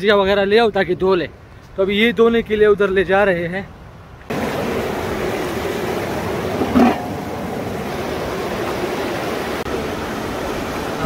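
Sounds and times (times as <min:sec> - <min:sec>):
fast-flowing river rushing: 0:04.3 - 0:11.0.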